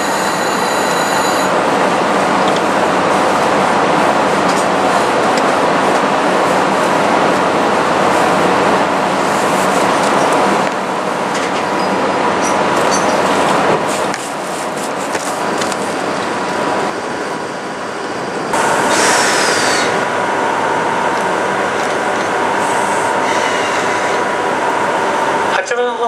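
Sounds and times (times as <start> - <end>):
locomotive mechanical noise: 0.0 - 26.0.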